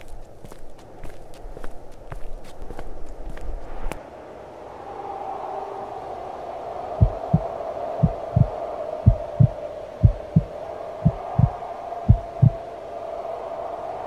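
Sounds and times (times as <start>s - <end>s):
heartbeat thumps: 7.0s - 8.5s, 9.1s - 12.6s.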